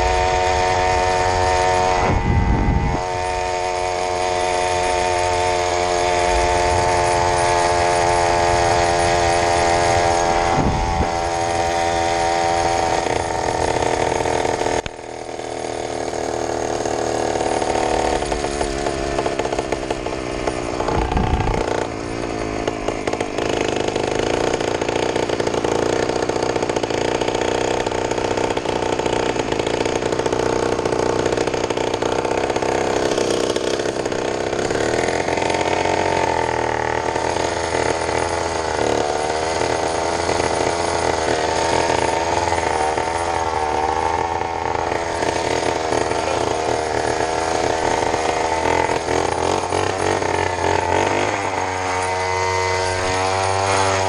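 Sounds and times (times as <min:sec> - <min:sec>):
two-stroke engine buzzing: 0:00.0 - 0:54.0.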